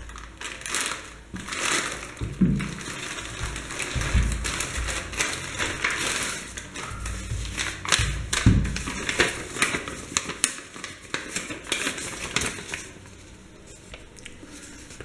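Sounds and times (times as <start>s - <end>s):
plastic mailer bag crinkling: 0.0s - 15.0s.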